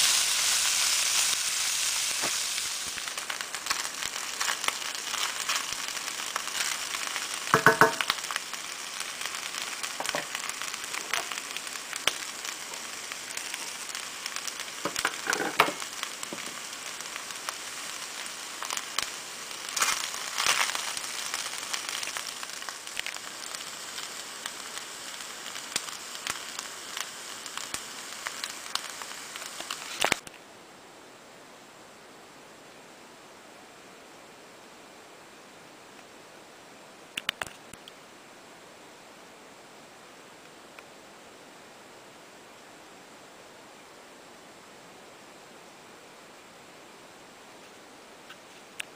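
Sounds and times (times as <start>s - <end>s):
rice sizzling in a pan: 0.0s - 30.3s, 47.5s - 48.9s
faint steady hiss: 0.0s - 48.9s
spoon knocking on pan: 7.5s - 8.1s.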